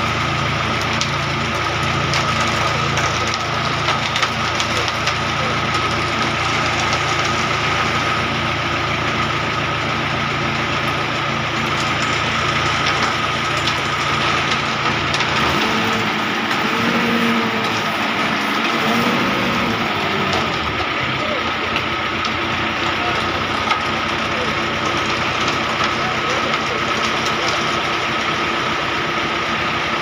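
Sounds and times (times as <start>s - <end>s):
diesel engine running: 0.0s - 30.0s
engine whine: 0.0s - 30.0s
wet concrete sliding down chute: 11.1s - 21.9s.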